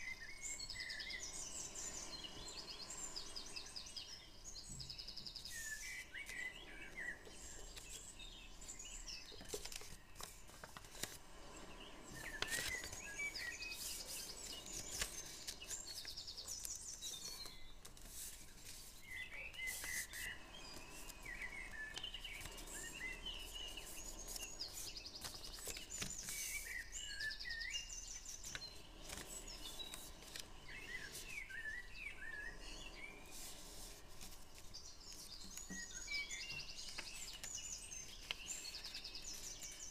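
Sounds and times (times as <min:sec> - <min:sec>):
small birds chirping: 0:00.0 - 0:39.9
paper being folded: 0:09.3 - 0:26.8, 0:28.2 - 0:31.3, 0:33.3 - 0:35.8, 0:36.6 - 0:39.9.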